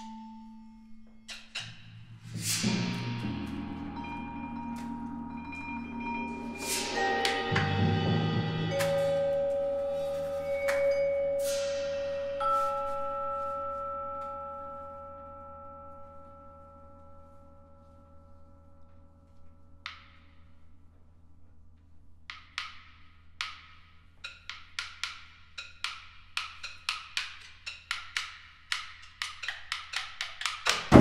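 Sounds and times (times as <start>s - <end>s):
bell-like metal tone ringing: 3.0s - 19.8s
hand percussion knocks: 22.3s - 31.0s.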